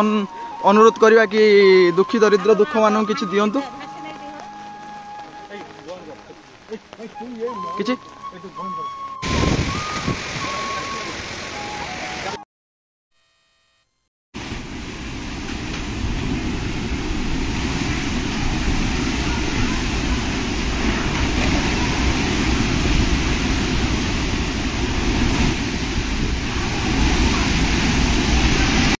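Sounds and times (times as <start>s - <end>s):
driving rain: 0.0s - 12.4s, 14.4s - 29.0s
wind buffeting microphone: 9.0s - 11.6s, 15.4s - 29.0s.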